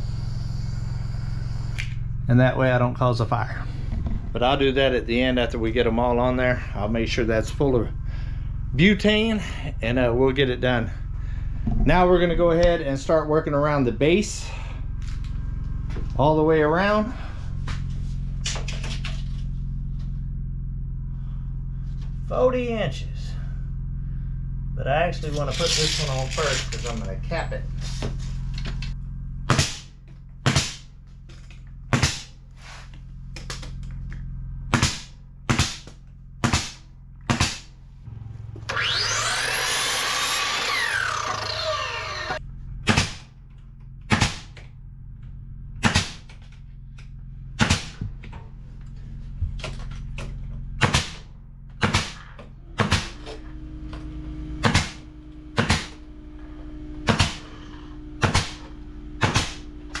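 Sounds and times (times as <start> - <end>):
noise with sweeping pitches: 0.0 - 18.5
steady low hum: 0.0 - 60.0
nail gun shots: 29.5 - 29.9, 30.5 - 30.8, 31.9 - 32.3, 34.7 - 35.8, 36.4 - 37.7, 42.9 - 43.2, 44.1 - 44.6, 45.8 - 46.3, 47.6 - 48.0, 50.8 - 51.2, 51.8 - 53.2, 54.6 - 55.0, 55.6 - 56.0, 57.1 - 57.5, 58.2 - 58.6, 59.2 - 59.6.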